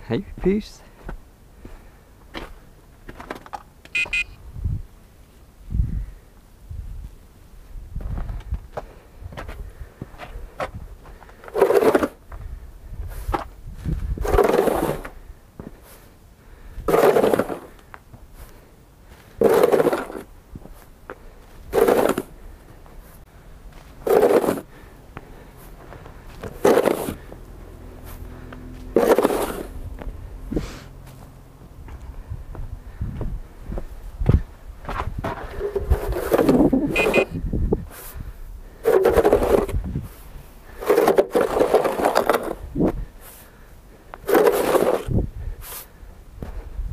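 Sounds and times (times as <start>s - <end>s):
snow shovel scraping pavement: 11.2s - 12.3s, 14.1s - 15.2s, 16.9s - 17.8s, 19.2s - 20.9s, 21.6s - 22.4s, 23.8s - 27.4s, 28.8s - 29.8s, 35.2s - 37.3s, 38.7s - 43.5s, 44.2s - 45.9s.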